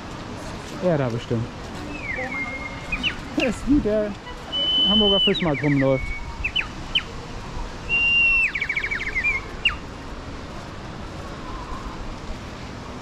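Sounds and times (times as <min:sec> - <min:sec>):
bird whistling song: 0:01.9 - 0:03.3, 0:04.5 - 0:07.1, 0:07.9 - 0:09.8.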